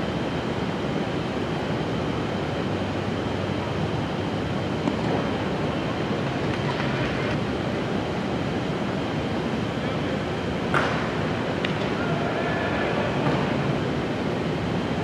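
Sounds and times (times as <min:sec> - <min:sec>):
crowd murmur: 0:09.6 - 0:14.0.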